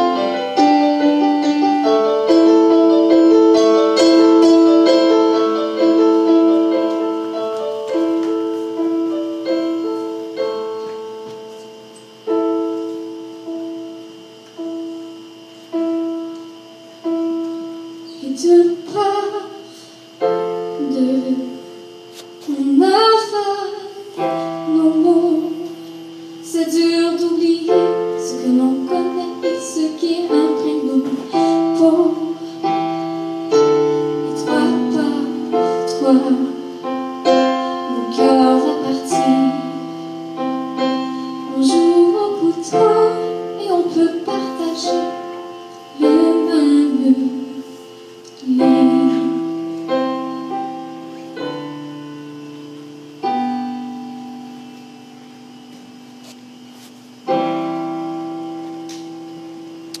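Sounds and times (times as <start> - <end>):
digital piano chords: 0.0 - 60.0
young woman singing: 18.2 - 19.7, 20.6 - 21.8, 22.4 - 25.8, 26.4 - 32.7, 33.5 - 37.0, 37.8 - 40.0, 41.5 - 47.8, 48.4 - 49.7.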